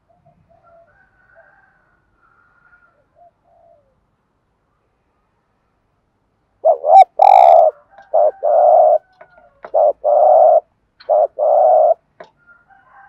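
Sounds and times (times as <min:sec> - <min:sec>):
dove cooing: 0:03.0 - 0:04.0, 0:06.6 - 0:12.1.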